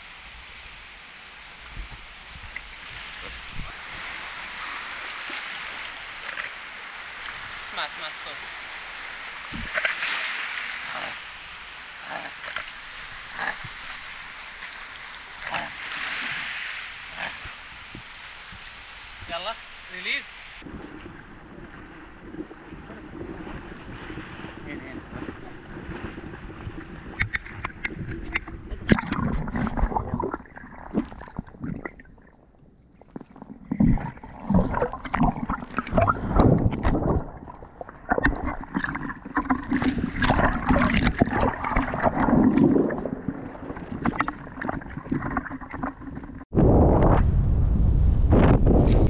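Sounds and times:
waves washing over reef: 1.2s - 32.3s, 33.1s - 47.3s
muffled underwater water sloshing: 1.3s - 19.8s, 20.4s - 46.5s
low rumbles: 20.6s - 49.0s
fish knocks and splashes: 25.8s - 32.3s, 33.0s - 46.4s.

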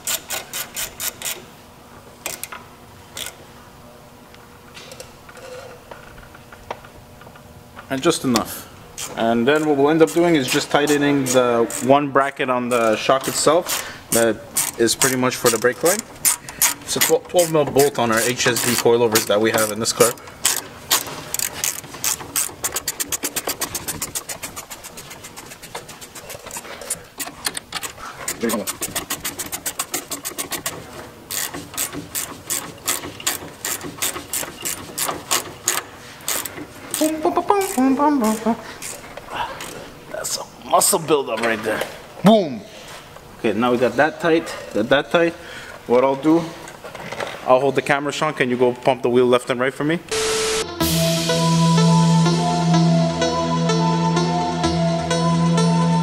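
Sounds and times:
wrench clicking: 0.0s - 1.4s, 2.2s - 2.6s, 3.2s - 3.4s, 9.0s - 12.0s, 12.7s - 39.0s.

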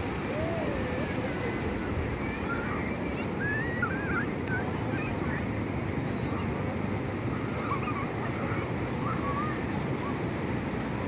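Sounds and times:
people crying out in water: 0.0s - 1.9s
ocean surf washing over beach: 0.0s - 11.0s.

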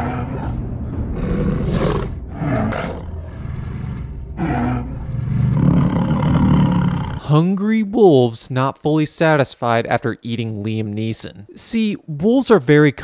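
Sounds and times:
wolves growling and snarling: 0.0s - 7.2s
steady low rumble: 0.0s - 7.3s.

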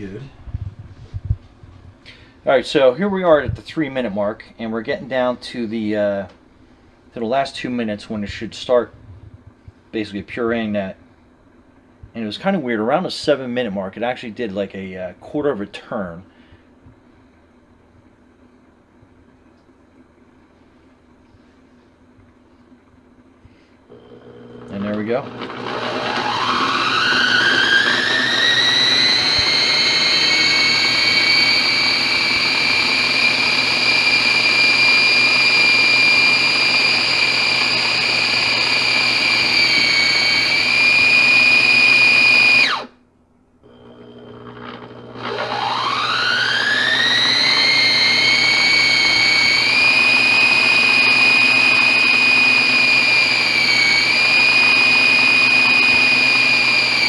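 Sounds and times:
blender motor whine: 23.9s - 43.0s, 43.6s - 57.0s.

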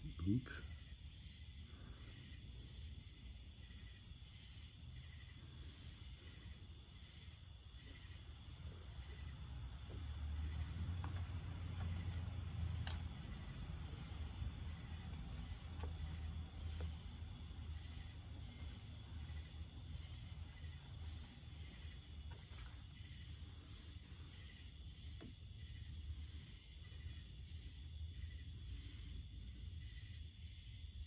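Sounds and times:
faint insect-like chirping: 0.0s - 31.0s
faint clicks: 12.8s - 13.4s.

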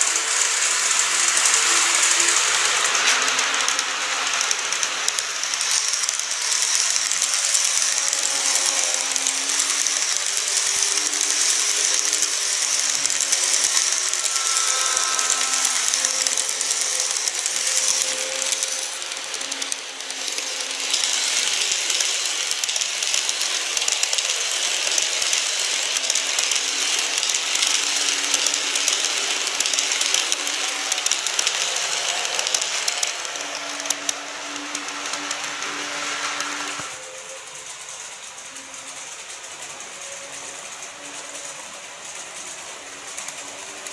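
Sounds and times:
model trains rattling on track: 0.0s - 43.9s
faint motor whine: 6.2s - 39.8s.

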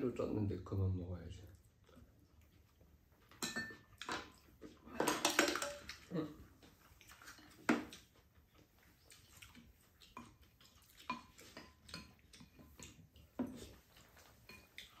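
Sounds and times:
utensils clinking on ceramic bowls: 3.3s - 6.1s, 11.0s - 15.0s.

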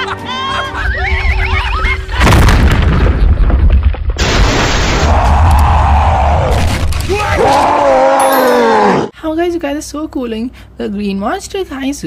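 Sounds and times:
loud boom with deep rumble: 2.2s - 5.5s.

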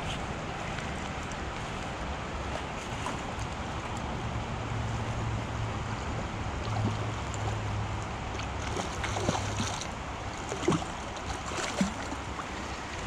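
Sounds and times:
creek water flowing: 0.0s - 13.0s.

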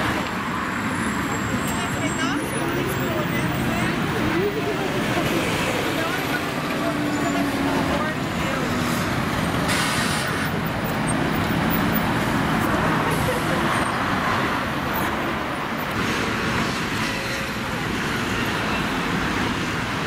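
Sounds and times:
bus driving past: 0.0s - 20.0s
cars driving past: 0.0s - 20.0s.

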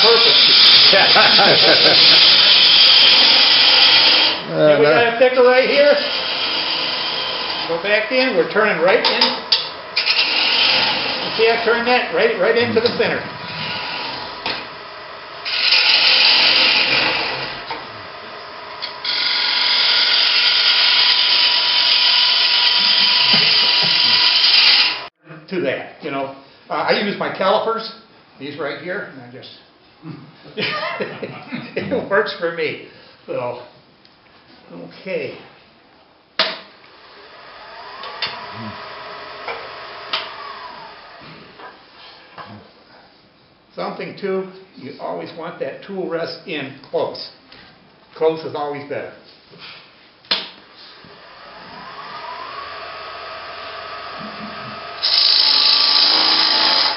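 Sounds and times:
gouge scraping spinning wood: 0.0s - 4.5s, 5.6s - 25.1s, 37.0s - 41.3s, 50.9s - 56.9s
lathe humming: 0.0s - 4.6s, 5.4s - 25.1s, 36.9s - 41.4s, 50.7s - 56.9s.

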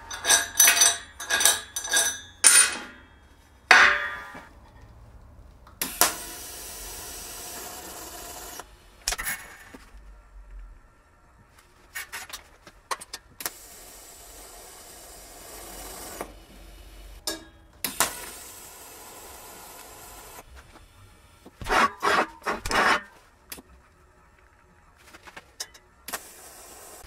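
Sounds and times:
welding arc hissing: 5.8s - 9.8s, 13.4s - 17.2s, 17.8s - 21.8s, 26.1s - 27.0s.

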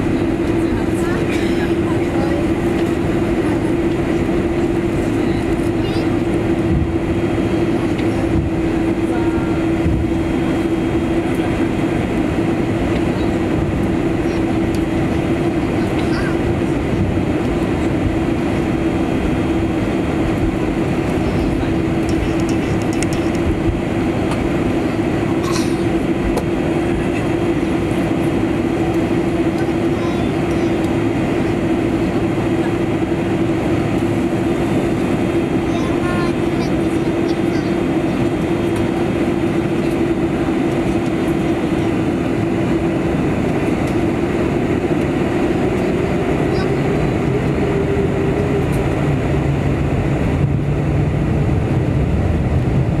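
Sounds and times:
aircraft engine drone at idle: 0.0s - 53.0s
low rumble of airframe and wheels: 0.0s - 53.0s.

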